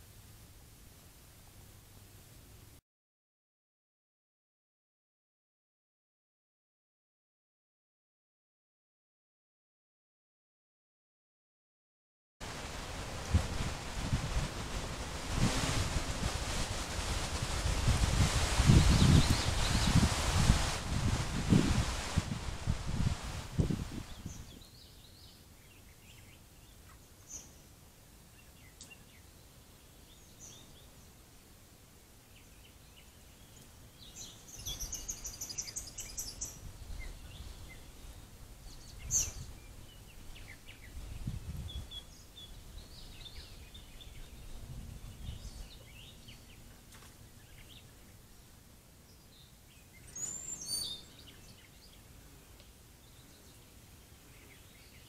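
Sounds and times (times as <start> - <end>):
low rumbling noise: 12.4 - 24.4
birds chirping: 49.1 - 55.0.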